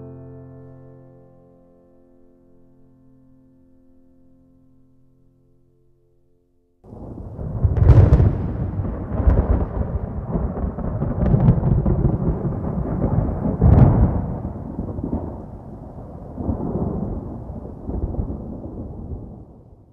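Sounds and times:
sharp cracks: 6.9s - 16.3s
deep rumbling booms: 6.9s - 19.9s.

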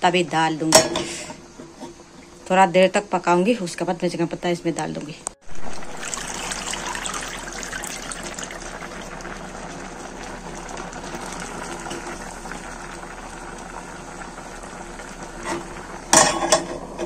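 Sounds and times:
curry bubbling and popping: 5.5s - 17.0s.

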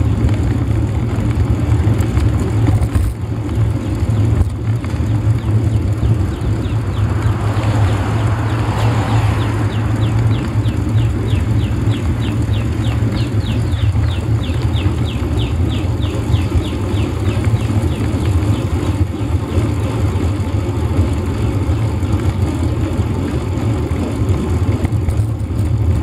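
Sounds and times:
tyre and road rumble: 0.0s - 26.0s
wind buffeting microphone: 1.2s - 20.2s.

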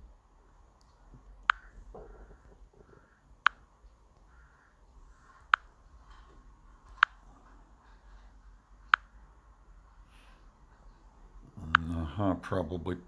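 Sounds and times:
faint room hum: 0.0s - 13.0s
taps on a touchscreen: 1.4s - 2.4s, 3.4s - 3.7s, 5.5s - 5.7s.

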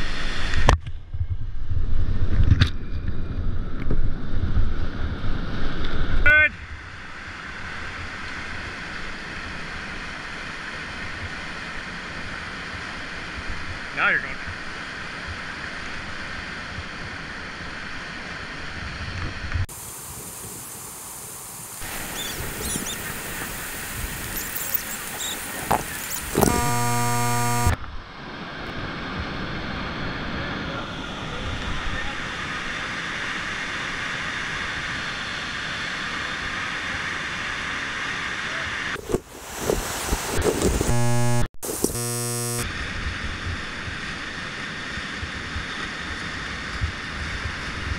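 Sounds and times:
whitewater rapids rushing: 19.8s - 26.4s.

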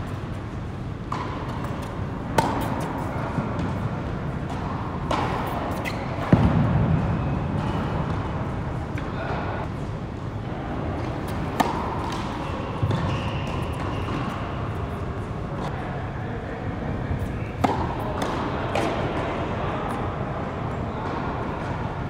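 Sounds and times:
tennis balls struck by rackets: 0.6s - 9.5s, 11.0s - 14.8s, 17.5s - 19.3s.

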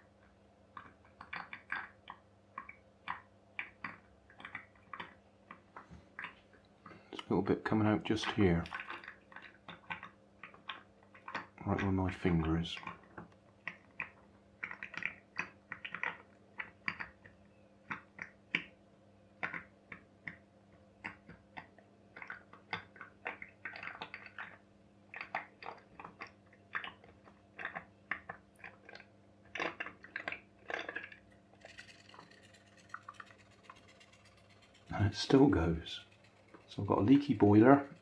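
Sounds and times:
wet crackles and pops: 0.0s - 7.4s, 12.5s - 18.8s, 21.0s - 31.6s.

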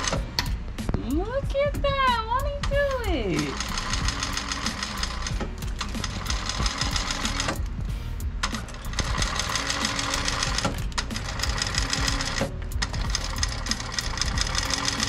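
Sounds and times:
sewing machine stitching: 5.9s - 7.6s, 8.5s - 15.0s.

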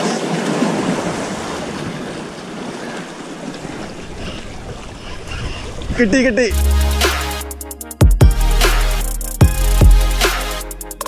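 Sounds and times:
sea waves washing against rocks: 0.0s - 6.6s.

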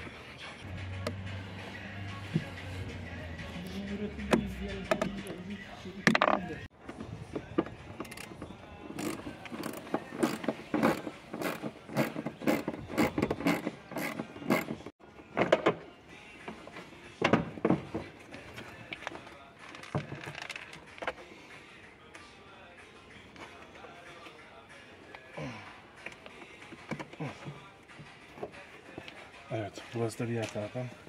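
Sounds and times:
socket ratchet clicking: 9.0s - 14.7s.

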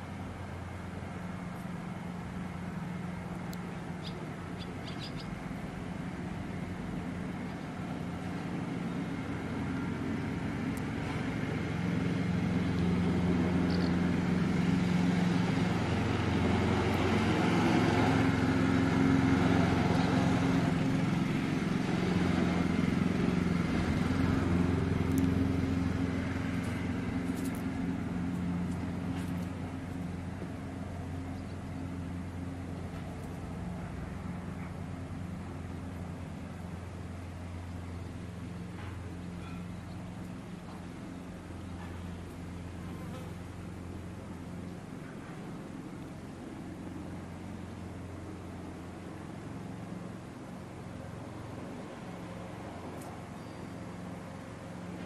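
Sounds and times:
engine hum: 0.0s - 55.0s
bird chirps: 4.0s - 5.4s, 53.4s - 53.9s.

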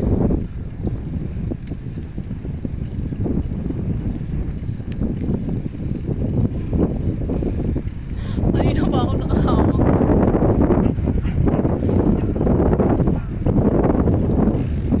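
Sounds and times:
faint ticks and rattles: 0.0s - 15.0s
wind buffeting microphone: 0.0s - 15.0s.

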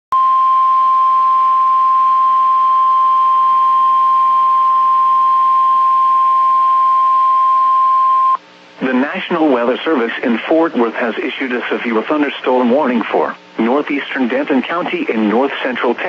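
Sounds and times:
steady alarm tone: 0.2s - 8.4s.

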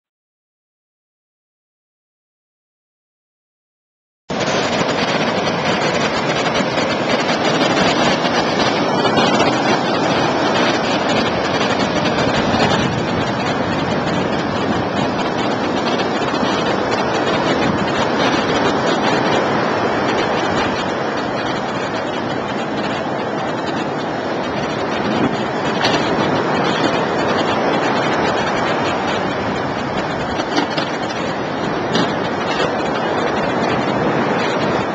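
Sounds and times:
surf breaking on rocks: 4.3s - 34.9s
wind buffeting microphone: 4.3s - 34.9s.

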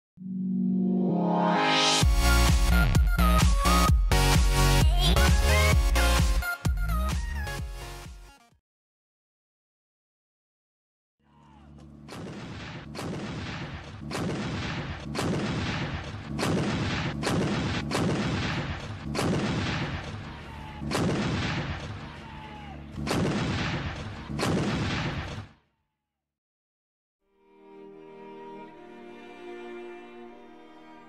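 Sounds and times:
artillery gun firing: 12.1s - 20.3s, 20.9s - 22.0s, 23.0s - 25.5s.

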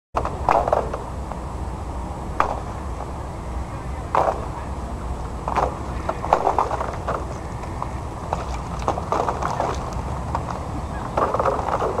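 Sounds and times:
low wind rumble: 0.2s - 12.0s.

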